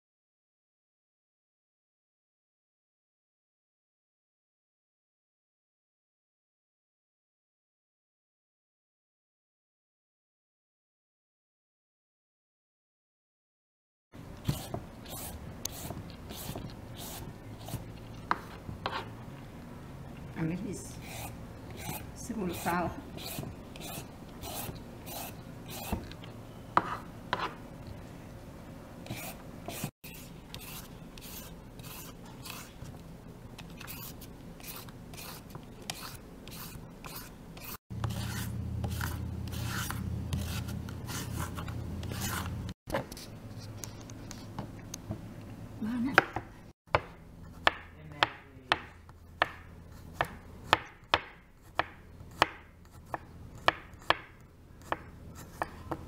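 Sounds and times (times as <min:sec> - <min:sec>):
peeler shredding vegetables: 0:20.8 - 0:26.2.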